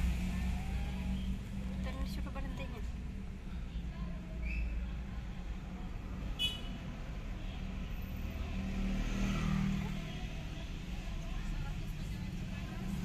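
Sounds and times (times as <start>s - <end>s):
low engine hum: 0.0s - 4.3s
passing motor vehicle: 0.0s - 13.0s.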